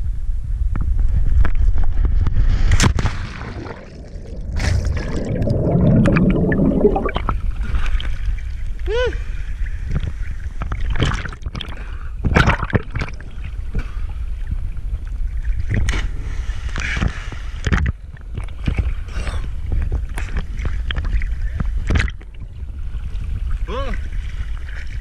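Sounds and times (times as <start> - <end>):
low rumble: 0.0 - 11.0
waves splashing: 2.6 - 8.1
water sloshing and slapping: 2.6 - 8.8, 9.9 - 25.0.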